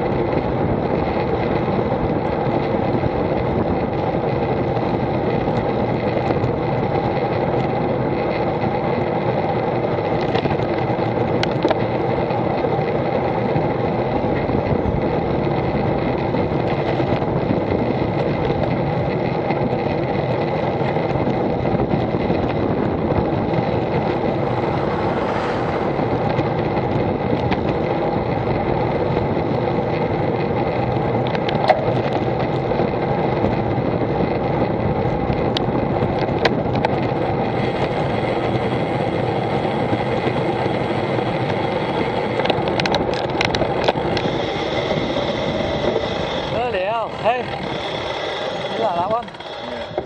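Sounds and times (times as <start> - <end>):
bicycle road rumble: 0.0 - 50.0
sharp clicks and rattles: 0.0 - 50.0
wind: 0.0 - 50.0.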